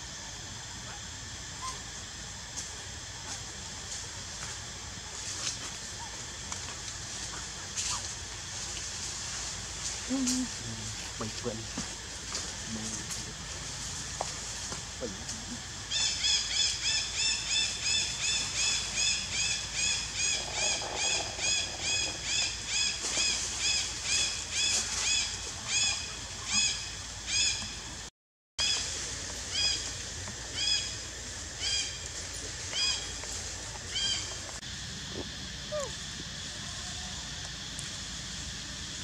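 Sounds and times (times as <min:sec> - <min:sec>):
animal chirping calls: 0:35.6 - 0:36.0.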